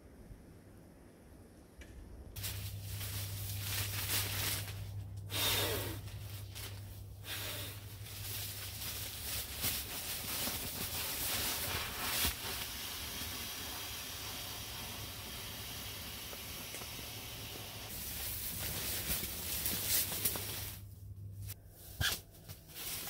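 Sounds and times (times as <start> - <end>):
nylon fabric rustling: 2.4 - 12.6, 17.9 - 23.0
hiss of rushing air: 10.3 - 19.2.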